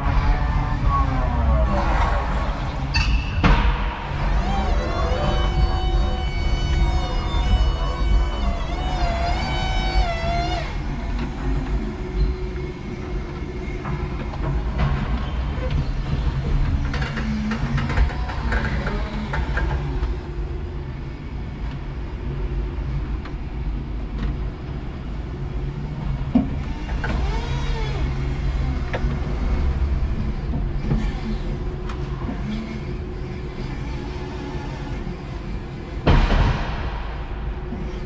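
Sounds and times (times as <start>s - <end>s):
forklift motors whining: 0.0s - 36.3s
steady low hum: 0.0s - 38.0s
knocks and clanks: 2.0s - 20.2s, 26.0s - 38.0s.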